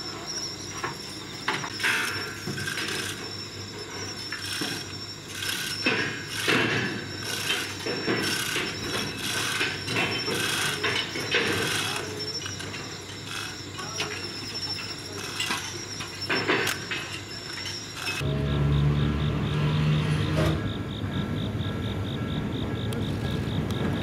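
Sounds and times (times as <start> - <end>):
insect trill: 0.0 - 24.0
chain hoist clanking and rattling: 0.8 - 18.3.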